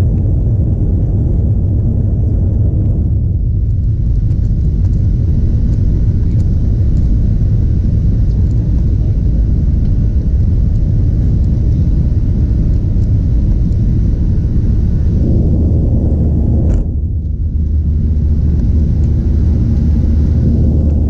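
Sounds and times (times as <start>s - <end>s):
aircraft cabin low rumble: 0.0s - 21.0s
jet engines running: 0.0s - 21.0s.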